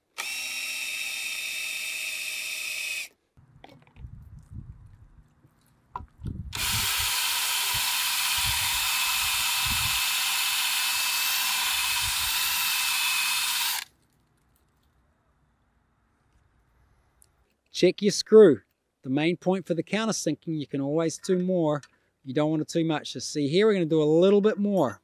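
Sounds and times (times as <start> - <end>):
cordless drill whirring: 0.0 - 3.2, 6.5 - 13.9.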